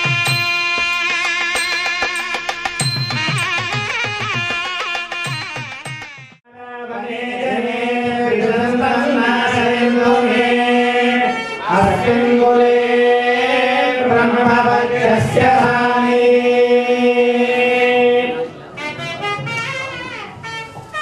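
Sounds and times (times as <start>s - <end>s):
music with drums: 0.0s - 6.4s
group chanting in unison: 6.6s - 18.5s.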